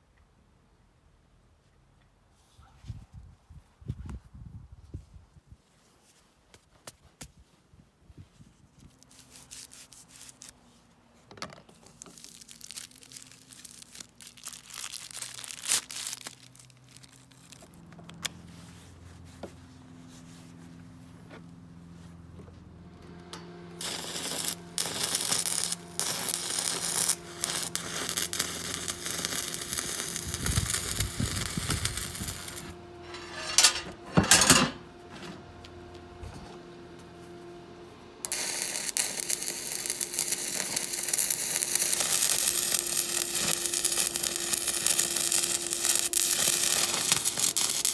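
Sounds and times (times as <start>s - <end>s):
loud crackling and rustling: 11.8s - 18.8s, 38.3s - 47.9s
machine fan hum: 18.3s - 47.9s.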